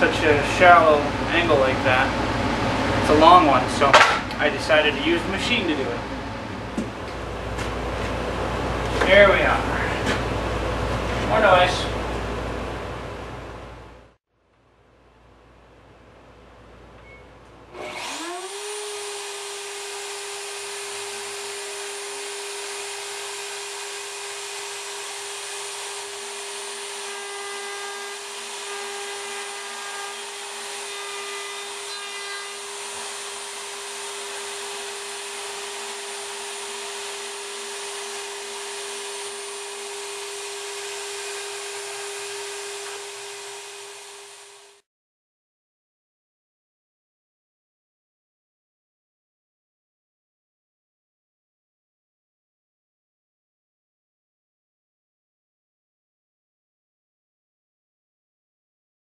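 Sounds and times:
router spindle high whine: 17.8 - 44.8.

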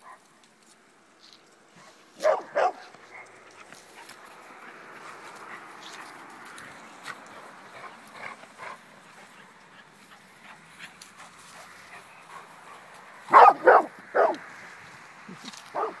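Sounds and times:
dog barking: 1.8 - 3.3, 13.3 - 14.5, 15.7 - 16.0.

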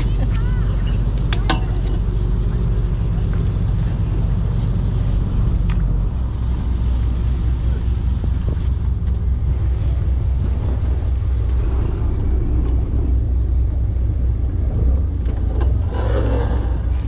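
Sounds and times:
boat engine idling: 0.0 - 17.0
wind noise on microphone: 3.8 - 17.0.

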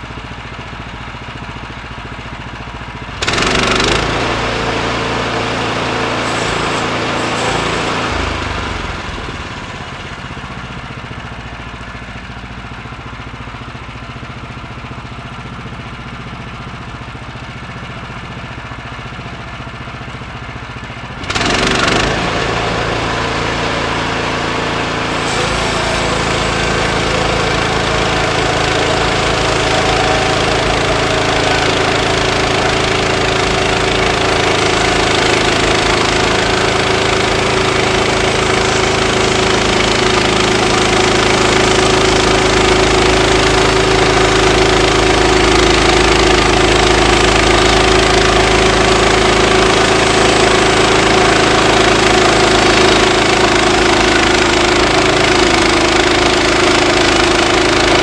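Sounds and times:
gasoline engine running: 0.0 - 58.0
band saw blade cutting log: 3.2 - 9.8, 21.2 - 58.0.

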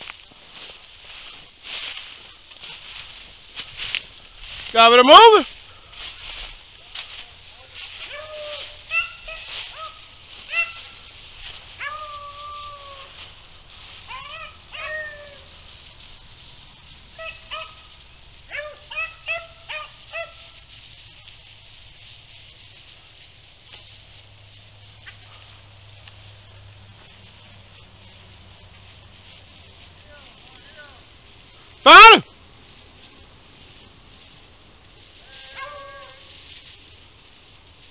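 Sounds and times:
hounds baying: 7.8 - 15.8, 17.0 - 20.8, 35.2 - 36.4.

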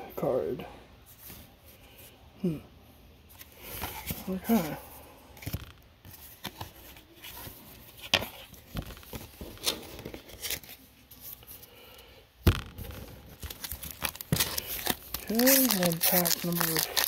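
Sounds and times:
trading cards clicking and rustling: 12.7 - 17.0.

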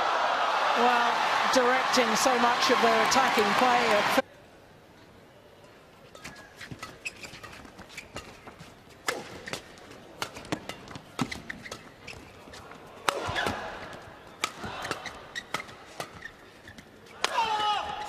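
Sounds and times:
crowd noise: 0.0 - 6.0
shoes squeaking on court: 6.1 - 17.2
rackets hitting shuttlecock: 9.0 - 9.6, 13.0 - 13.7, 14.3 - 16.2.

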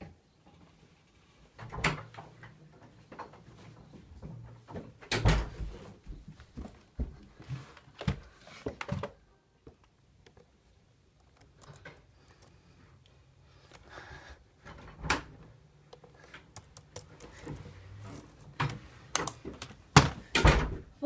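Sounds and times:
laptop handling knocks and bumps: 18.5 - 20.6.

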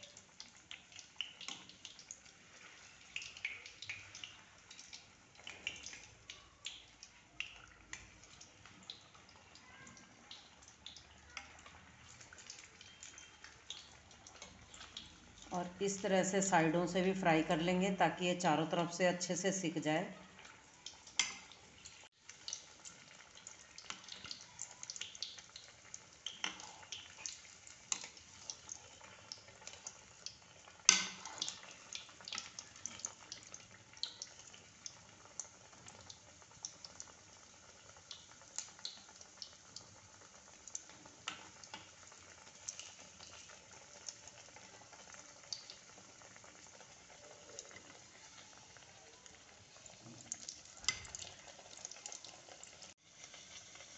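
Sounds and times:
food deep-frying in oil: 0.0 - 53.9
crackles and pops of oil: 0.2 - 2.4, 3.1 - 9.1, 20.8 - 37.1, 50.0 - 52.3.

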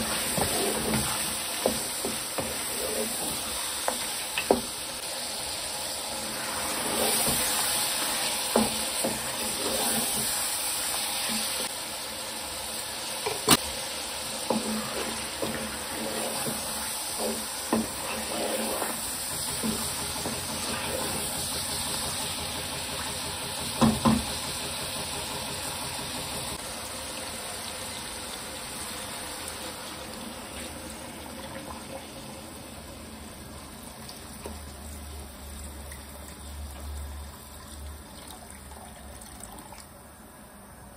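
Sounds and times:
food sizzling in a wok: 0.0 - 35.8
wooden spoon knocking on pan: 3.8 - 4.7, 23.6 - 24.4
water pouring: 35.8 - 39.9.

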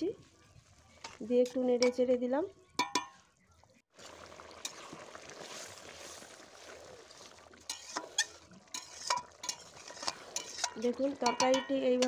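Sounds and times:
curry boiling in a wok: 0.0 - 12.0
spatula scraping a pan: 4.6 - 12.0.

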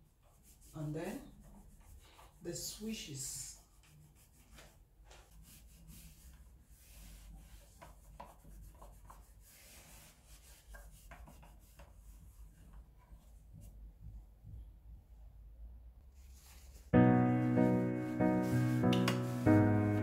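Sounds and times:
wet cloth wiping a wall: 0.0 - 14.4, 16.0 - 20.0.

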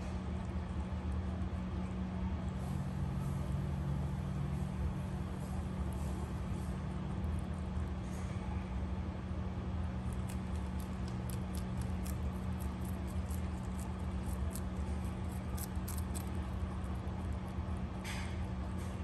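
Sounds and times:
rabbit chewing lettuce: 0.0 - 19.0
steady low hum: 0.0 - 19.0.

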